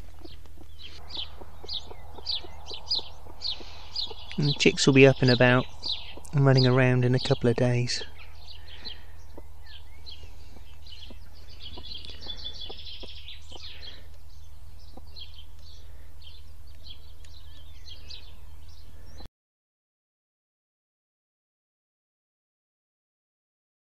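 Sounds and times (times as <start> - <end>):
low hum: 0.0 - 19.2
small birds chirping: 0.0 - 19.3.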